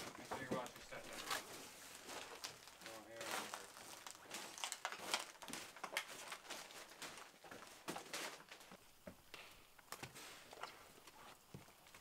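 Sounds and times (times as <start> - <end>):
footsteps and scuffing: 0.0 - 9.2.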